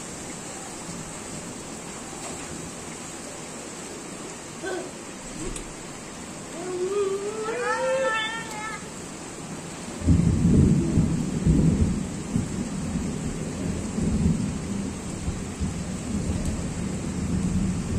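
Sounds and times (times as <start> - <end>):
heavy rain on street: 0.0 - 17.9
thunder rumbling: 5.3 - 17.9.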